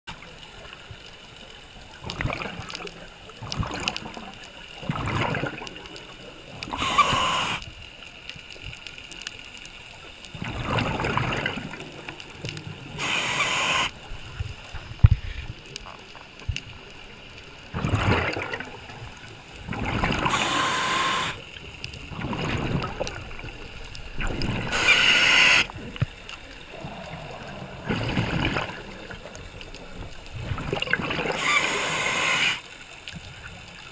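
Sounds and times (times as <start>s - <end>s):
bubbling exhales: 2.0s - 5.8s, 10.3s - 12.1s, 17.7s - 21.4s, 22.1s - 26.0s, 26.6s - 32.6s.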